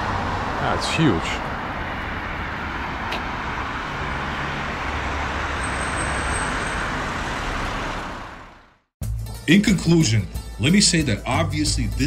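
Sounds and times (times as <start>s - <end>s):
road traffic: 0.0s - 9.0s.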